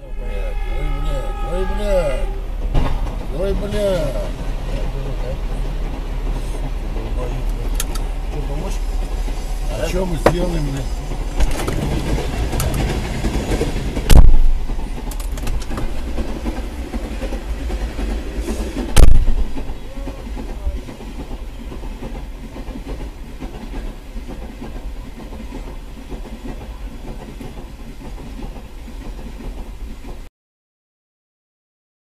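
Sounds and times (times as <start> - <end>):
freight train wheels clattering: 2.6 - 30.3
loud thumps: 13.9 - 14.9, 18.9 - 19.8.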